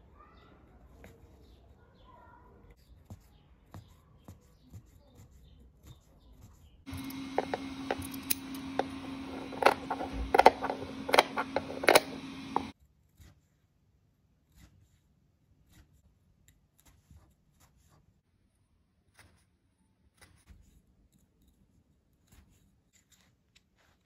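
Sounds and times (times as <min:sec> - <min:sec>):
steady low hum: 0:06.9 - 0:12.8.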